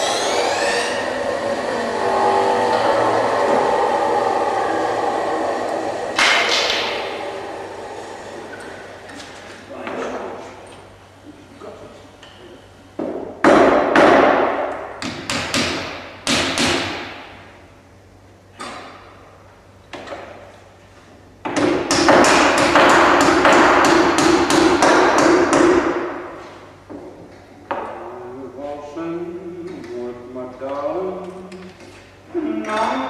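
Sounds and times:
hammer striking timber: 6.2 - 7.0, 13.0 - 17.2, 21.5 - 26.0.

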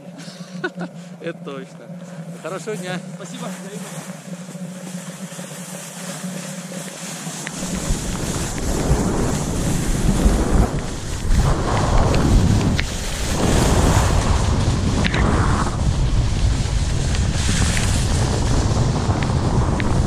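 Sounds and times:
skis scraping over snow: 2.0 - 20.0
wind buffeting microphone: 6.3 - 20.0.

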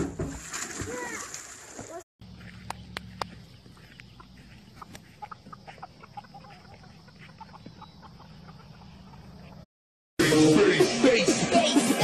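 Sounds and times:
hen and chicks clucking: 2.3 - 9.6.

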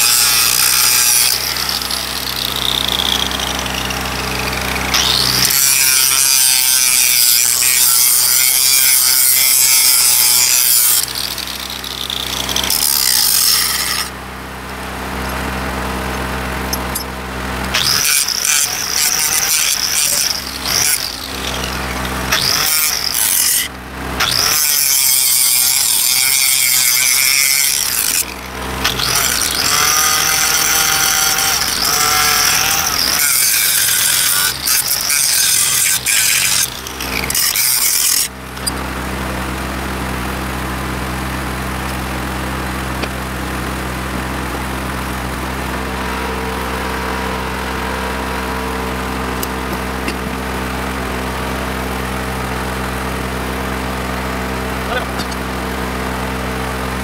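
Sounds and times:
angle grinder grinding steel: 0.0 - 14.4, 16.2 - 39.4, 54.8 - 55.6.

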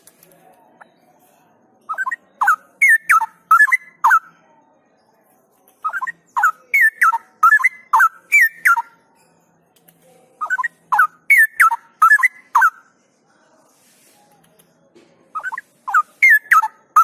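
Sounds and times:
bird singing whistled notes: 1.9 - 4.3, 5.8 - 9.0, 10.4 - 12.8, 15.4 - 17.0.

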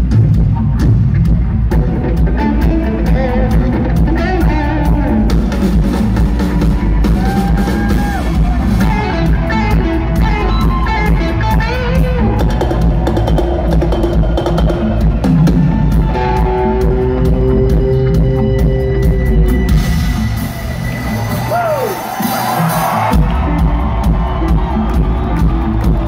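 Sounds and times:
drum kit: 0.0 - 26.0
electric guitar lead lines: 0.7 - 21.5.

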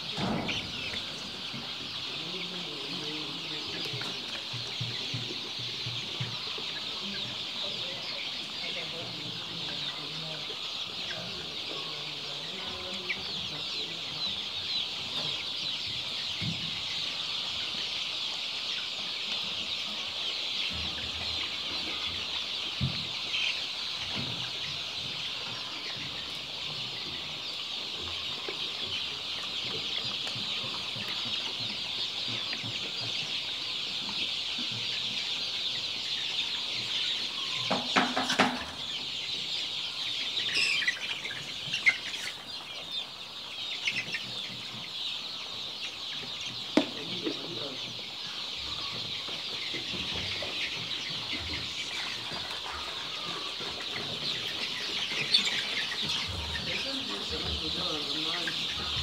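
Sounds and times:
chicks peeping: 0.0 - 59.0.

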